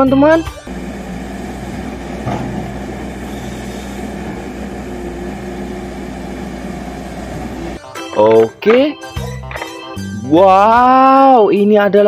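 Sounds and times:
excavator diesel engine running: 0.0 - 8.6.

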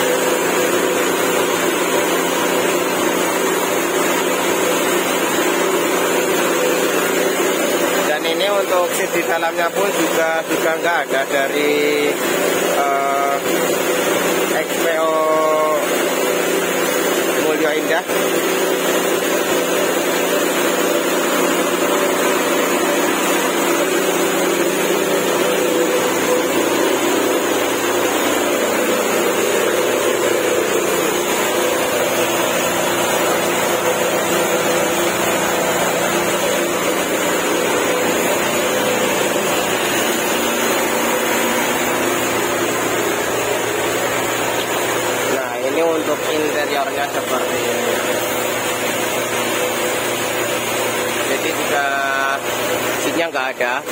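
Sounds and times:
machine motor humming: 0.0 - 53.9.

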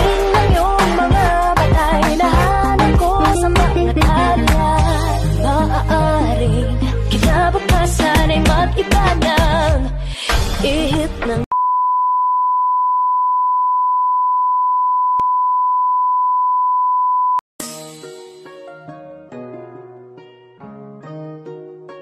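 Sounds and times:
pop music: 0.0 - 11.5
steady test-tone beep: 11.6 - 17.4.

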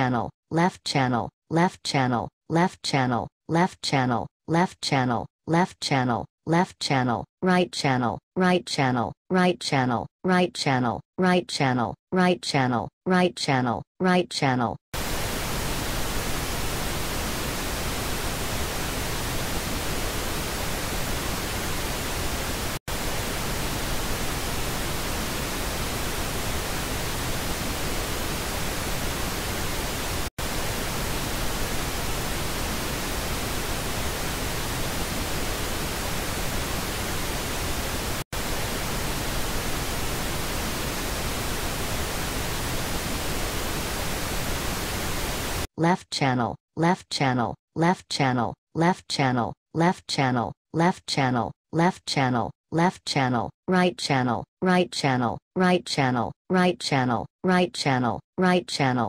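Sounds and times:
pink noise hiss: 15.0 - 45.7.

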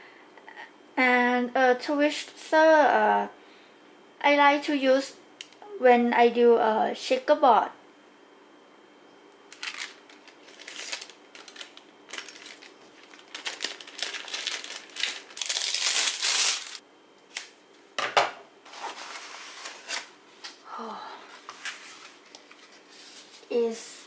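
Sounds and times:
plastic bag crinkling: 9.5 - 16.8.

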